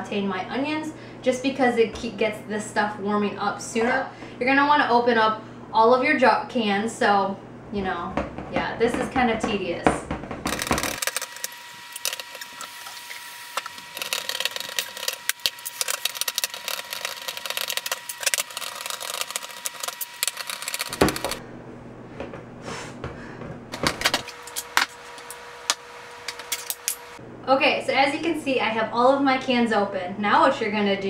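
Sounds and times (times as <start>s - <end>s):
can opener clicking and rattling: 10.5s - 12.8s, 13.6s - 21.4s.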